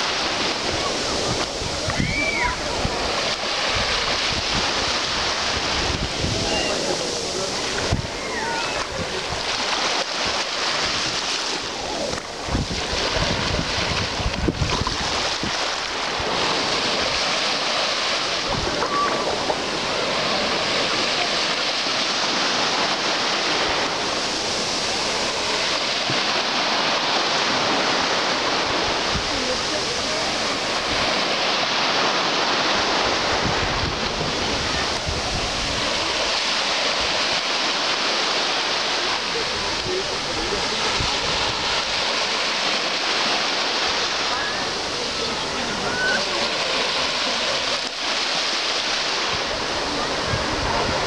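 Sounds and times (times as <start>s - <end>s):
wind buffeting microphone: 0.0s - 17.4s, 32.7s - 36.4s, 49.2s - 51.0s
small waves lapping on shore: 0.0s - 51.0s.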